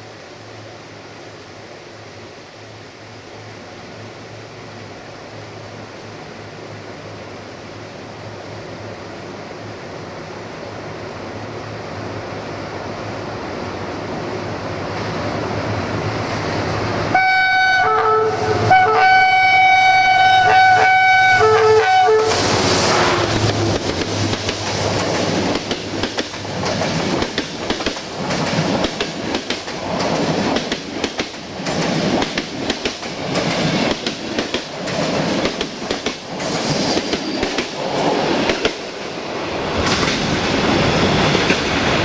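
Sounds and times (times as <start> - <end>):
diesel locomotive rumbling: 1.7 - 42.0
locomotive horn blast: 17.1 - 23.5
train wheels rushing: 18.3 - 42.0.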